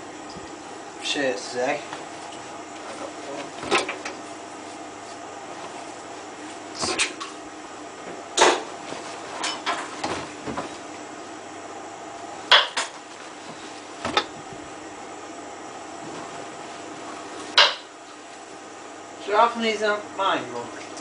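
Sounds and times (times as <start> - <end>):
clothes knocking in washing machine drum: 3.2 - 4.2, 8.0 - 11.0, 12.5 - 14.8.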